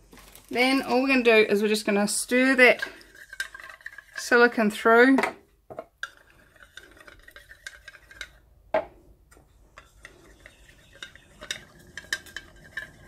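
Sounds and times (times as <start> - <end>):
stick scraping inside a cup: 2.2 - 4.7, 6.0 - 8.5, 9.5 - 13.0.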